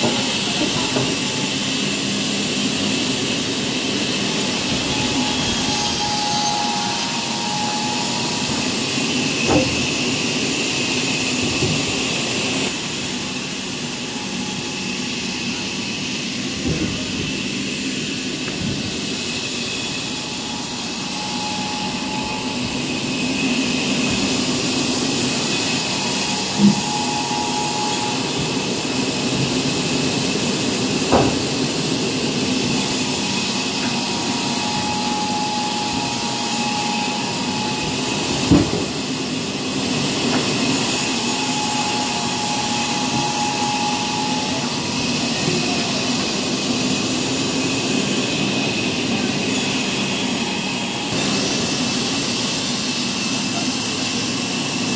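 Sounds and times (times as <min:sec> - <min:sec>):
band saw hissing: 0:00.1 - 0:54.9
thin whine: 0:01.2 - 0:17.1, 0:17.7 - 0:31.5, 0:32.3 - 0:38.4, 0:39.4 - 0:47.0.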